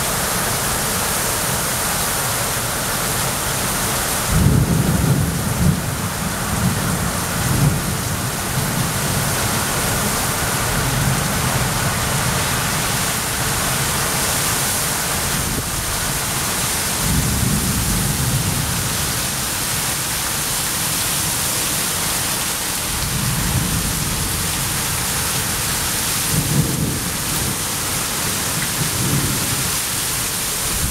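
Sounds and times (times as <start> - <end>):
torrential rain pouring: 0.0 - 30.9
strong wind gusts rumbling: 4.2 - 13.9, 15.0 - 19.2, 23.0 - 29.7.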